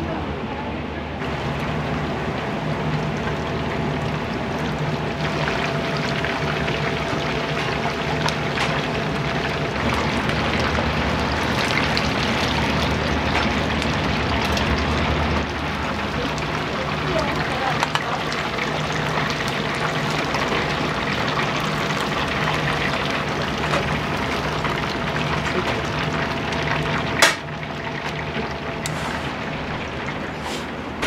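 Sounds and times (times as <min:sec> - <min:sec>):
hot oil sizzling and crackling: 0:01.2 - 0:31.0.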